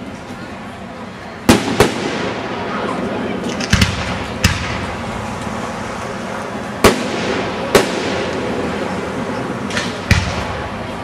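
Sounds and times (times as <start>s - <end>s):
outdoor background noise: 0.0s - 11.0s
fireworks bangs: 1.4s - 2.8s, 3.6s - 5.2s, 6.8s - 9.0s, 9.6s - 10.9s.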